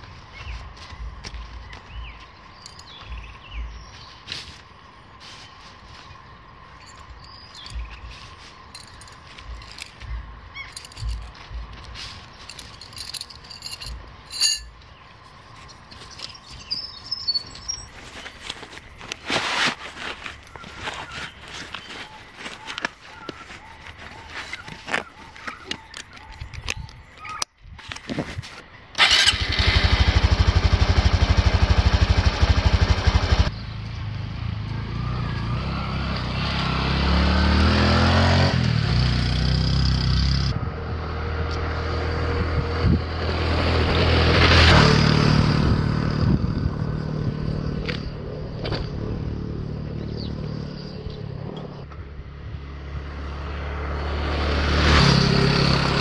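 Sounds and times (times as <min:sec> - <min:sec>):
motorbike engine idling and revving: 0:00.0 - 0:04.2, 0:06.8 - 0:14.9, 0:29.0 - 0:56.0.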